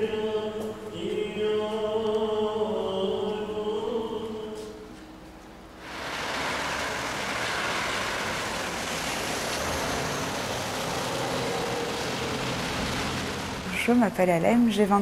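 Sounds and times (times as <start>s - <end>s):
bus driving past: 4.1s - 14.7s
tyres hissing on wet asphalt: 5.8s - 14.2s.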